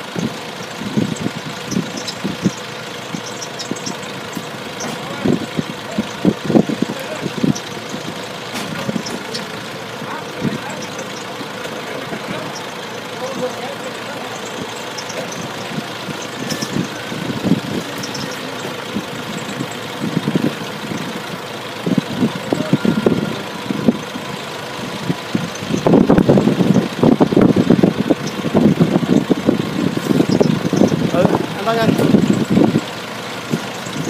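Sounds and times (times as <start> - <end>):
forklift engine idling: 0.0 - 34.0.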